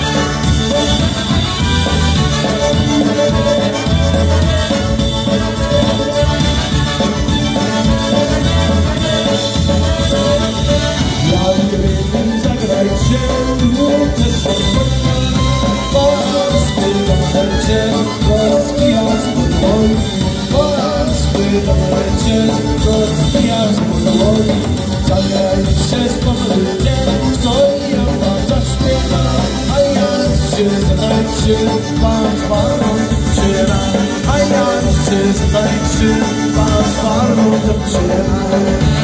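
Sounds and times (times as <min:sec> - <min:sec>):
clarinet: 0:00.0 - 0:25.4
concertina: 0:00.0 - 0:39.0
electric bass: 0:00.0 - 0:39.0
people singing: 0:00.0 - 0:39.0
piano accordion: 0:00.0 - 0:39.0
trumpet: 0:00.0 - 0:39.0.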